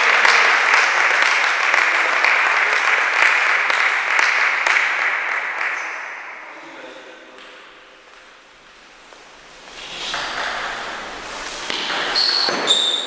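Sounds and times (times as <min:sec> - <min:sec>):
spectators applauding: 0:00.0 - 0:06.1.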